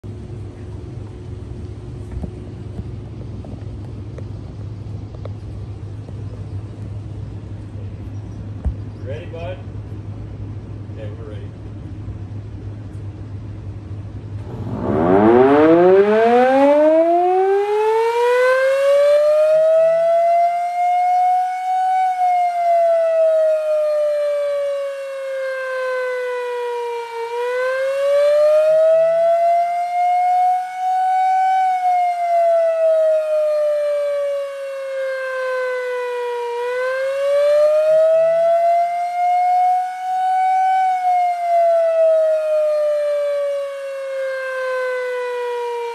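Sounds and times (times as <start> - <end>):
warning siren wailing: 13.9 - 45.9.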